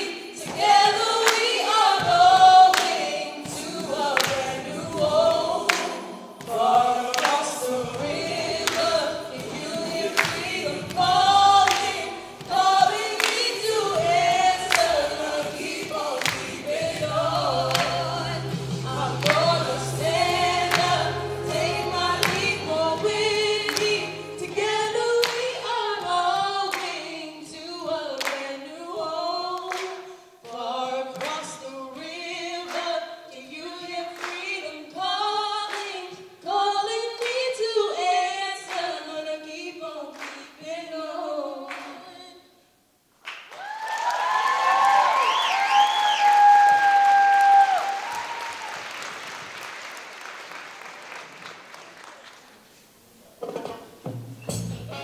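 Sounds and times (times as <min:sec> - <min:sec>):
women singing a cappella: 0:00.0 - 0:42.6
sharp hand claps: 0:00.5 - 0:01.6, 0:02.7 - 0:03.6, 0:04.2 - 0:04.6, 0:05.7 - 0:07.4, 0:08.7 - 0:09.6, 0:10.2 - 0:11.1, 0:11.7 - 0:14.1, 0:14.7 - 0:16.6, 0:17.7 - 0:18.0, 0:25.2 - 0:25.6, 0:43.2 - 0:52.5.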